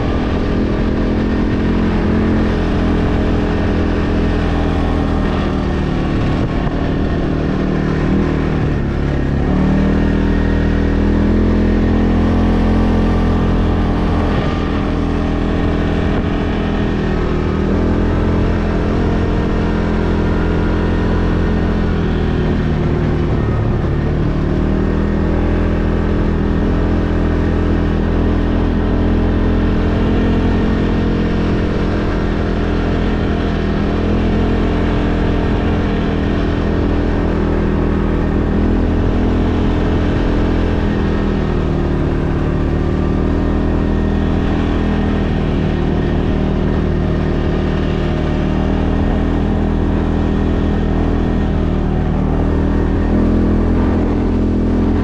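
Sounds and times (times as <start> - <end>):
engine running with low drone: 0.0 - 55.0.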